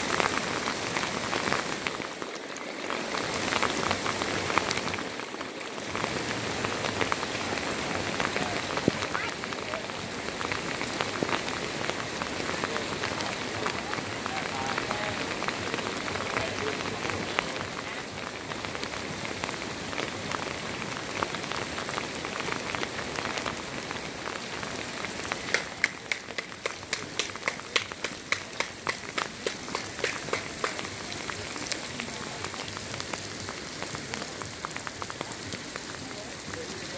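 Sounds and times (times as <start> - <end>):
heavy rain on wet sand: 0.0 - 36.9.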